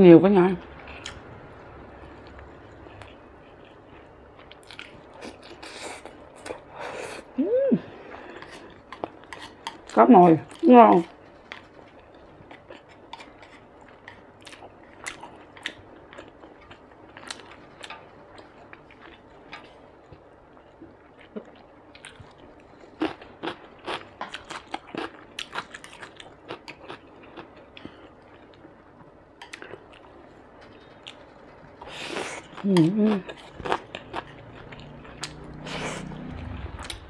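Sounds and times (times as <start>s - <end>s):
wet chewing with clicks: 2.2s - 6.6s.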